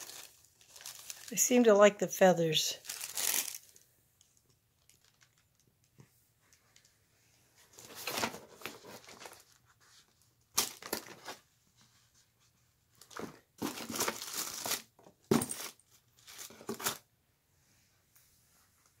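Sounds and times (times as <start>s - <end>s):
paper and cardboard rustling: 7.6s - 17.0s.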